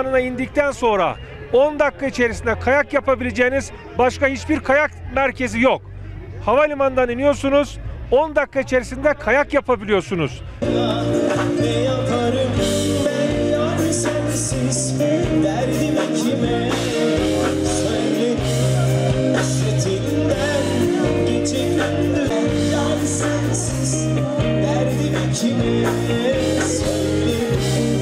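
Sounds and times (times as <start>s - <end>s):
live pop band playing: 10.6s - 28.0s
man singing into microphone: 10.6s - 28.0s.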